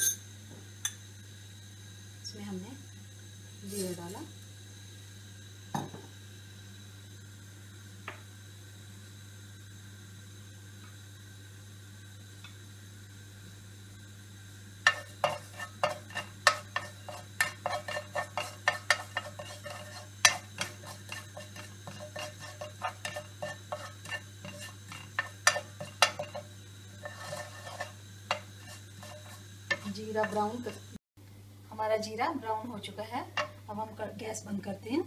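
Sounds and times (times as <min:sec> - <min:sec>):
light oil sizzle: 0:00.0 - 0:35.0
steady low hum: 0:00.0 - 0:35.0
spatula tapping and scraping pan: 0:14.8 - 0:30.8, 0:33.3 - 0:33.6.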